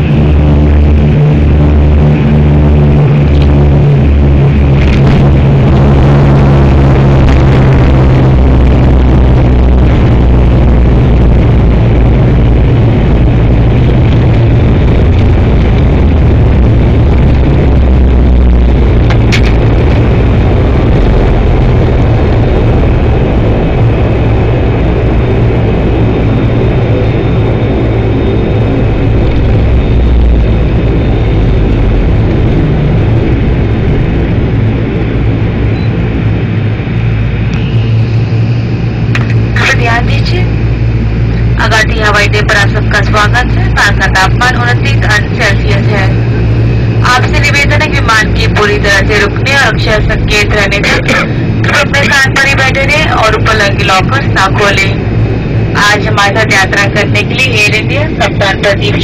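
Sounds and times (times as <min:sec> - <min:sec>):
propeller engine drone in cabin: 0:00.0 - 0:59.0.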